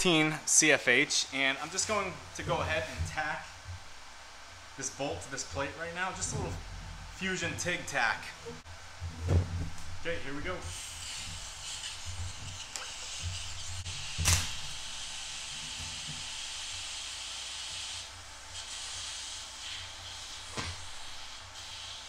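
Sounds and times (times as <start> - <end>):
welding arc hissing: 9.8 - 22.0.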